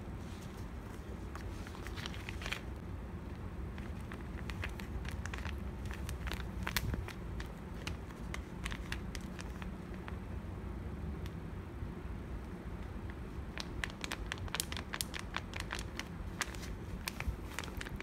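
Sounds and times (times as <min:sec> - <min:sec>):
steady low hum: 0:00.0 - 0:18.0
paper crinkling and rustling: 0:00.2 - 0:02.8, 0:03.7 - 0:10.2, 0:13.5 - 0:18.0.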